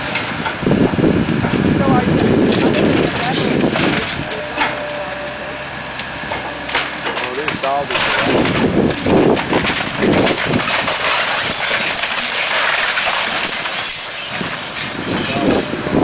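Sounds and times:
excavator engine running: 0.0 - 16.0
debris crashing: 1.8 - 5.0, 6.2 - 16.0
timber cracking and splintering: 6.6 - 16.0.

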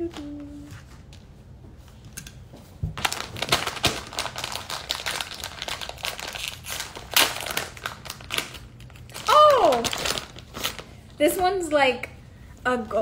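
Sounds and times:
plastic bag crinkling: 3.0 - 11.2.

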